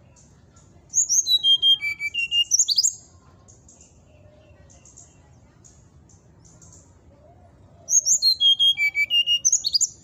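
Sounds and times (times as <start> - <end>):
bird chirping: 0.0 - 7.0, 7.8 - 10.0
bird whistling song: 0.9 - 3.1, 7.8 - 10.0.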